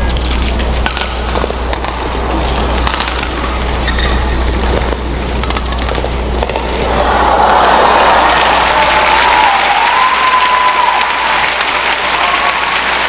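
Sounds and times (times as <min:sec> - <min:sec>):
racket hitting shuttlecock: 0:00.1 - 0:07.0
crowd murmur: 0:04.4 - 0:13.0.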